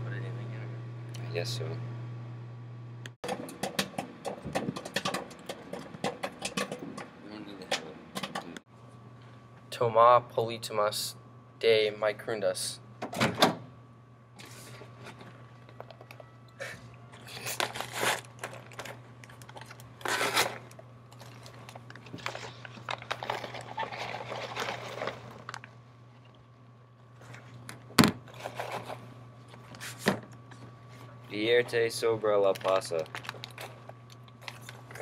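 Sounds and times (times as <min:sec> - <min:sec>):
paper bag crinkling and tearing: 0:17.3 - 0:25.7, 0:32.2 - 0:35.0.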